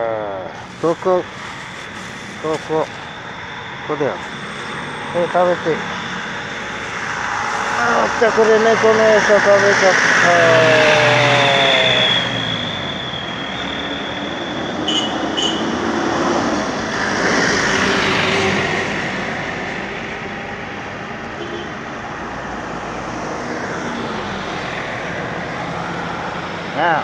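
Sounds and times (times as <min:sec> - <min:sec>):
passing vehicles: 0:00.0 - 0:27.0.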